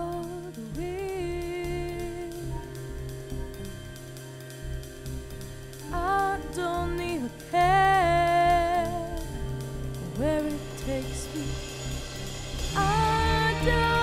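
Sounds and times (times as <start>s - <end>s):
woman singing slow tune: 0.0s - 3.0s, 5.9s - 12.0s, 12.7s - 14.0s
backing music: 0.0s - 14.0s.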